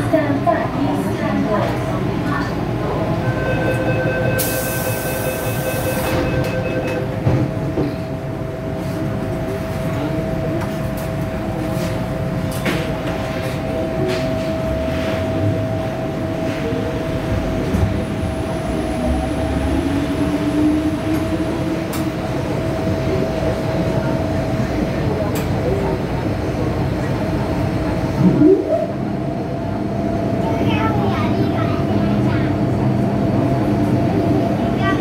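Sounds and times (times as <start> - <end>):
wheels rumbling on rail: 0.0 - 35.0
door closing warning tone: 3.3 - 7.3
train doors hissing shut: 4.4 - 6.6.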